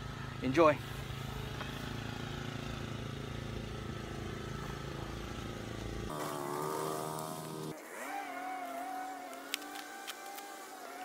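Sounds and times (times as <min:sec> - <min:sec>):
engine idling hum: 0:00.0 - 0:07.8.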